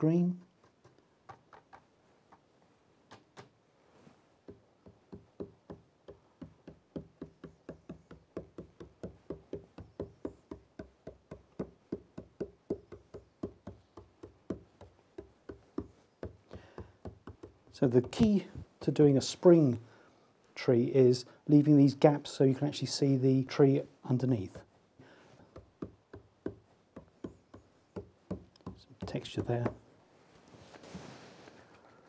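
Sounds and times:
brush tapping on canvas: 4.4 - 19.0, 25.4 - 29.8.

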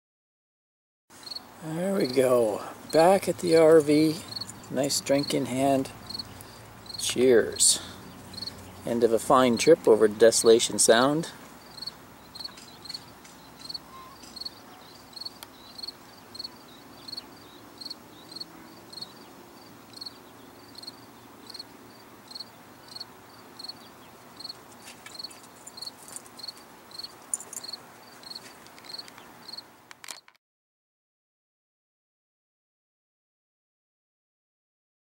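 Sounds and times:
faint outdoor background noise: 1.1 - 30.4
cricket chirping: 1.2 - 1.4, 2.9 - 8.6, 11.6 - 30.3.

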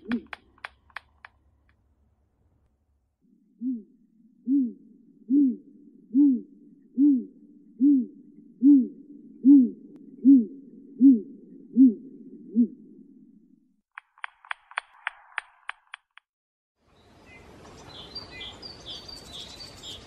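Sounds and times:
owl hooting: 0.0 - 0.9, 3.6 - 12.8.

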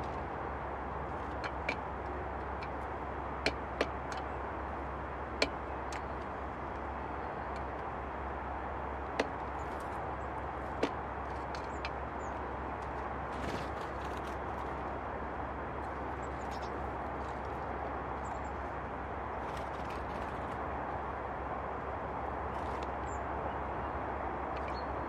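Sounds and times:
woodpecker tapping on metal tin: 1.1 - 4.4.

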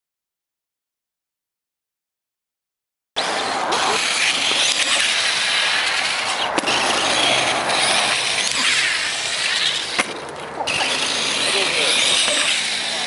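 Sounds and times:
toy truck motor whining: 3.2 - 13.0.

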